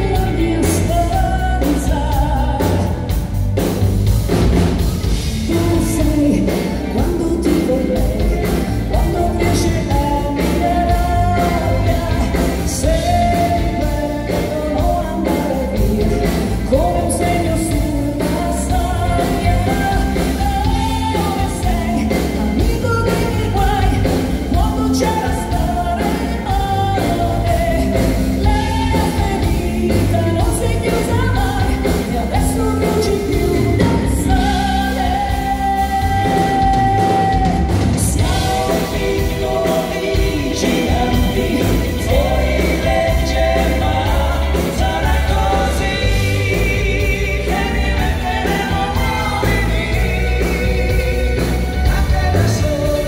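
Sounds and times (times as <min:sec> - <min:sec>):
woman singing: 0:00.0 - 0:03.3, 0:05.3 - 0:53.0
pop-rock band playing: 0:00.0 - 0:53.0.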